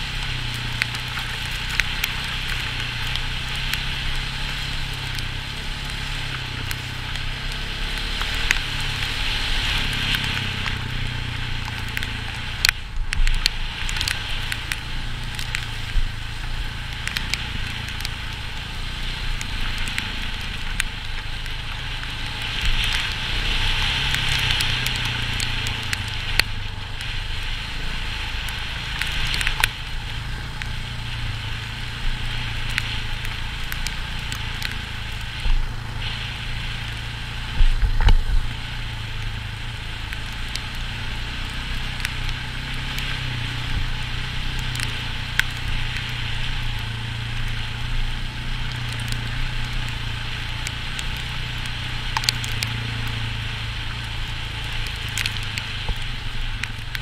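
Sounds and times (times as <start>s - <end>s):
motorcycle engine running: 0.0s - 57.0s
sharp ticks: 52.1s - 53.2s.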